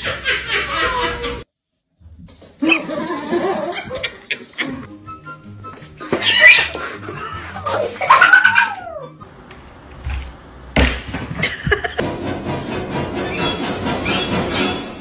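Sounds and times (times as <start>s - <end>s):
cat meowing and yowling: 6.2s - 6.7s, 8.0s - 9.2s.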